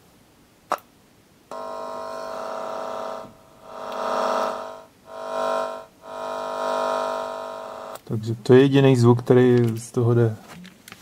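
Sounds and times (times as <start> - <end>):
buzzy electronic keyboard tone: 1.5 - 8.0.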